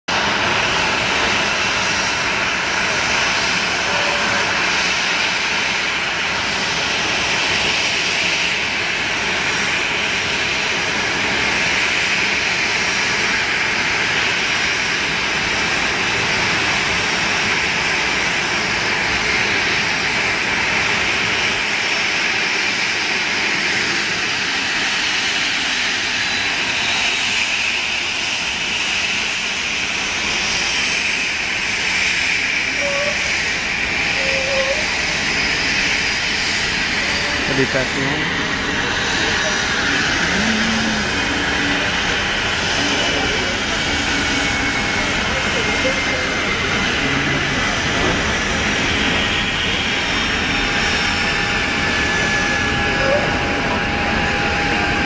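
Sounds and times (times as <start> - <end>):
jet engines taxiing: 0.1 - 55.0.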